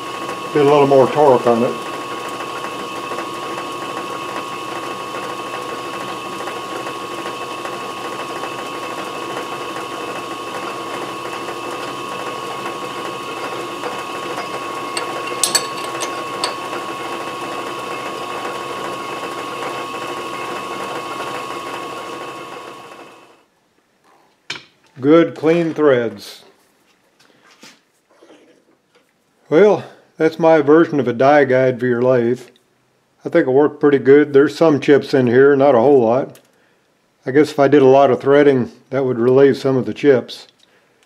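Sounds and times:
lathe gear whine: 0:00.0 - 0:23.4.

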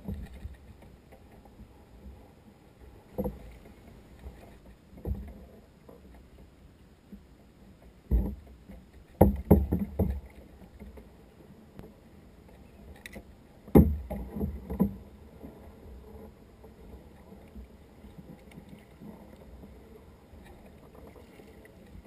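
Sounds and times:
knocks on plastic kayak: 0:09.2 - 0:10.2, 0:13.7 - 0:14.2.

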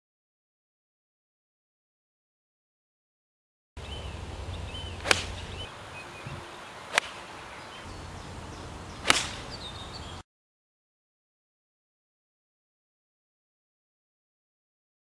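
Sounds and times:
golf club striking ball: 0:04.1 - 0:09.8.

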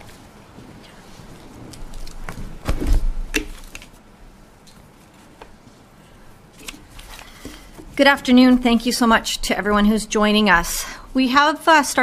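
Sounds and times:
papers rustling: 0:06.5 - 0:08.0.

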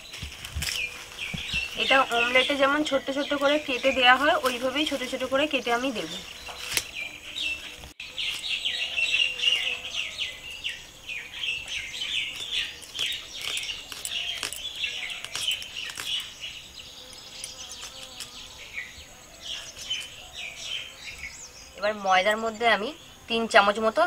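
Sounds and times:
faint insect drone: 0:00.0 - 0:24.0
small birds chirping: 0:00.0 - 0:24.0.

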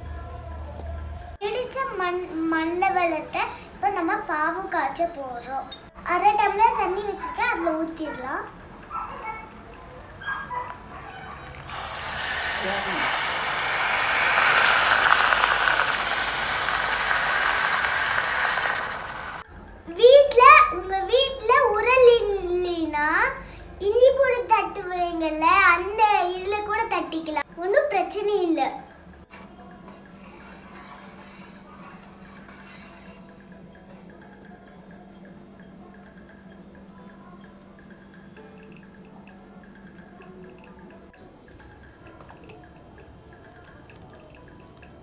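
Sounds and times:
water pouring into saucepan: 0:11.2 - 0:19.4
steady hiss: 0:11.6 - 0:19.5
metal spoon scraping saucepan: 0:29.3 - 0:33.8.

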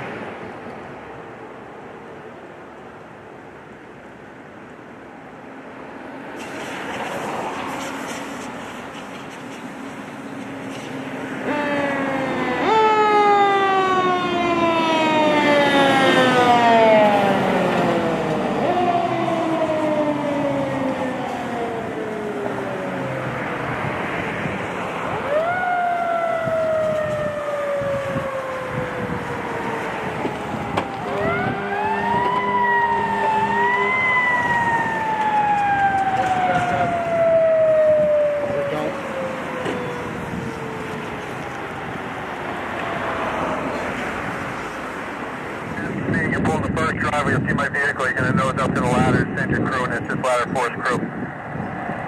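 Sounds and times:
passing traffic: 0:00.0 - 0:52.0
fire truck siren: 0:10.6 - 0:52.0.

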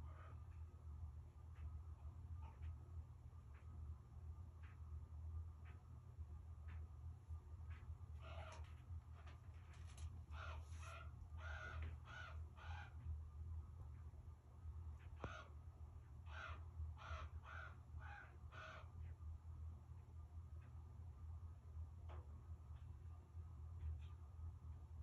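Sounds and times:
raven cawing: 0:08.2 - 0:08.8, 0:10.3 - 0:13.0, 0:15.2 - 0:15.6, 0:16.2 - 0:19.0.

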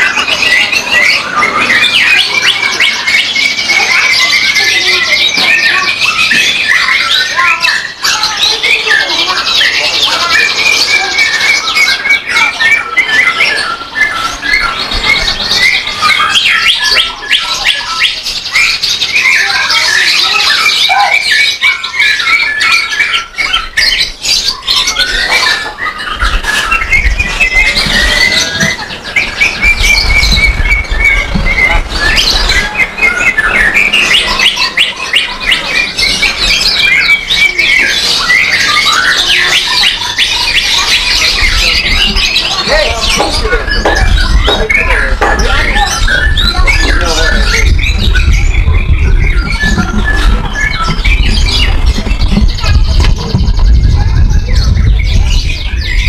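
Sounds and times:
songbirds singing: 0:00.0 - 0:56.0.

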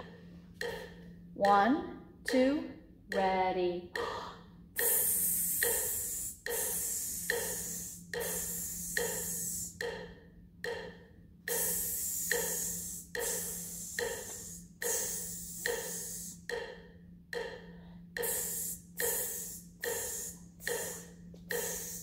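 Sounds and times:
person making hissing mouth sounds: 0:04.0 - 0:10.9, 0:11.5 - 0:16.8, 0:17.4 - 0:22.0.

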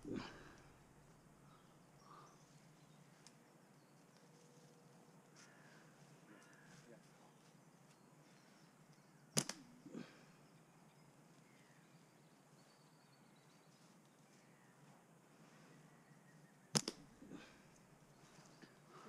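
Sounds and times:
catapult snapping: 0:09.4 - 0:09.6, 0:16.8 - 0:17.0.

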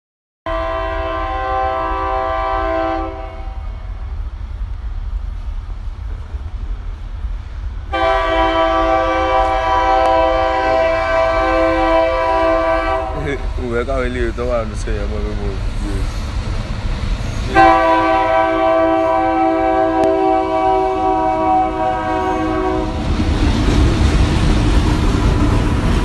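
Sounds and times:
train horn blasts: 0:00.5 - 0:04.0, 0:07.9 - 0:13.4, 0:17.5 - 0:23.0
steady low rumble: 0:03.4 - 0:08.2, 0:09.3 - 0:18.0, 0:22.8 - 0:26.0.

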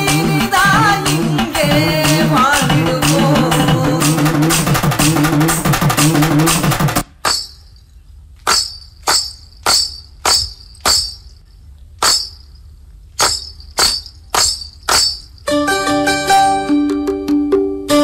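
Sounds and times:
dance music with plucked strings: 0:00.0 - 0:07.0, 0:13.3 - 0:18.0
jingling tambourine hits: 0:00.0 - 0:07.9, 0:08.5 - 0:15.6.

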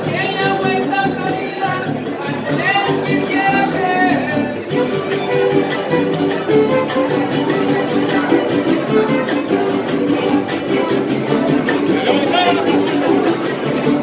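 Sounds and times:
strummed guitars: 0:00.0 - 0:14.0
bowed violin melody: 0:12.0 - 0:14.0.

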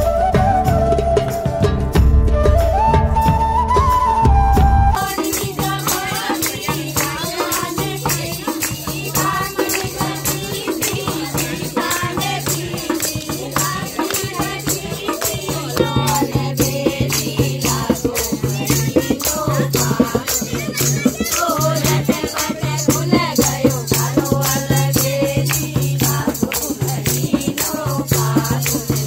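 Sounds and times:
hand drum: 0:00.0 - 0:29.0
hand-clapping: 0:05.0 - 0:16.4, 0:20.0 - 0:29.0
tambourine jingles: 0:05.0 - 0:29.0
women singing: 0:05.0 - 0:29.0.

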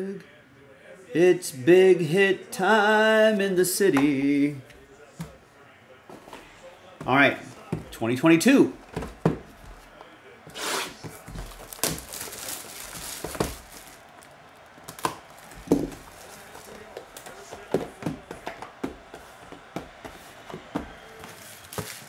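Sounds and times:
cardboard taps and knocks: 0:08.9 - 0:09.8, 0:14.9 - 0:16.3
plastic wrap crinkling and tearing: 0:11.0 - 0:17.5, 0:21.3 - 0:22.0.

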